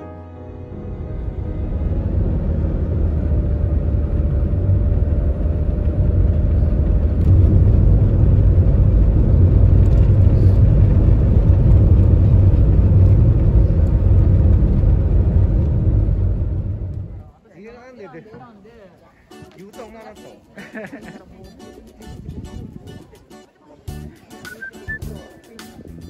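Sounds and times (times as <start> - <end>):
van tyres and engine rumble: 0.6 - 17.4.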